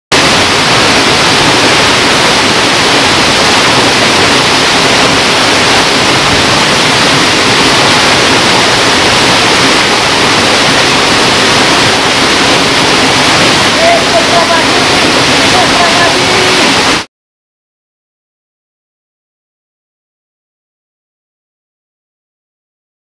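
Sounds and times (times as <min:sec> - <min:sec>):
waterfall rushing into pool: 0:00.1 - 0:17.1.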